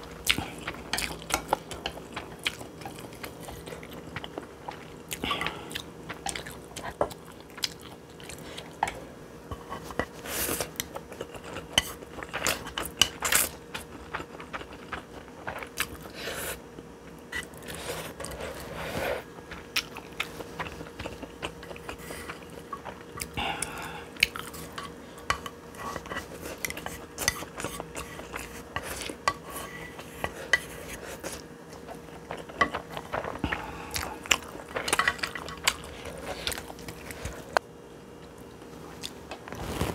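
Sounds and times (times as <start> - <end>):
chewing and biting: 19.5 - 23.4.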